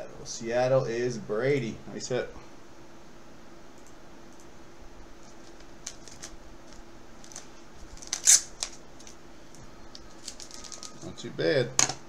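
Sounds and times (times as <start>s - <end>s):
steady low hum: 0.0s - 12.0s
plastic rustling: 5.2s - 11.2s.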